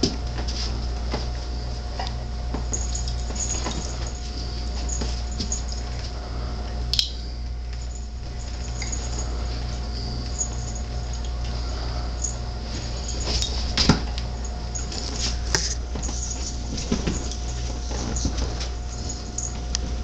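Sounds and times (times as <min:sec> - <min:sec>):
steady low hum: 0:00.0 - 0:20.0
animals scuffling clicks and thump: 0:02.0 - 0:06.2, 0:12.7 - 0:20.0.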